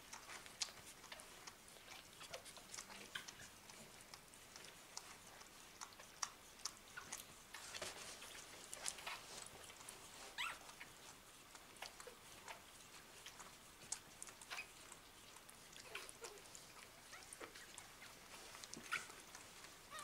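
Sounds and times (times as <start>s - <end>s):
puppies sucking and smacking: 0.0s - 20.0s
puppy squeak: 10.4s - 10.6s.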